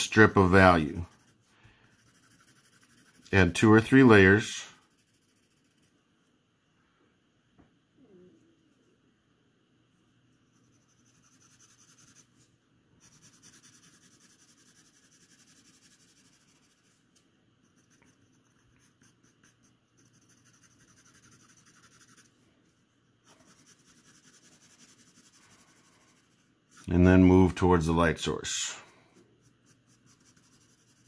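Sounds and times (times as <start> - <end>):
pencil scratching on paper: 0.0 - 6.0, 10.3 - 17.0, 17.6 - 22.4, 23.2 - 27.4, 29.2 - 31.0.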